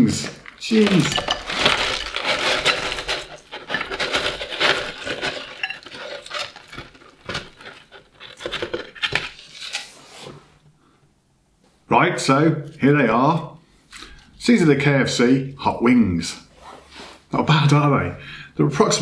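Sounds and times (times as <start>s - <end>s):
chicken wings scraping and rustling: 0.8s - 10.4s.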